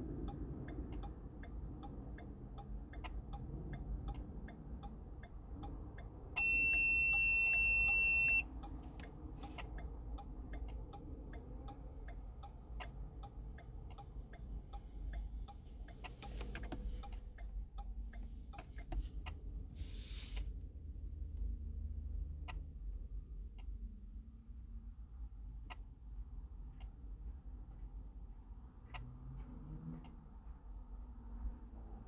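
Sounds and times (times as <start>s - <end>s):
steady ticking: 0.0s - 19.4s
loud electronic beep: 6.4s - 8.4s.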